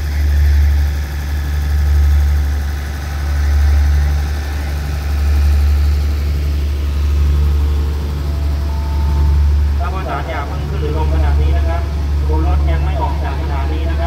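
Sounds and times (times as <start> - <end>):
diesel train engine idling: 0.0 - 14.0.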